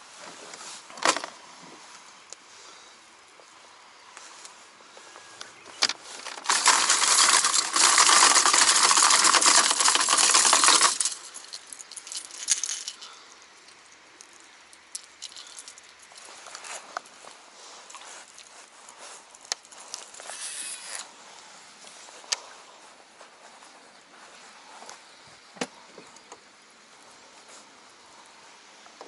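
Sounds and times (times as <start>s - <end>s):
plastic lures rattling in tackle box: 5.9s - 13.2s, 14.9s - 17.0s.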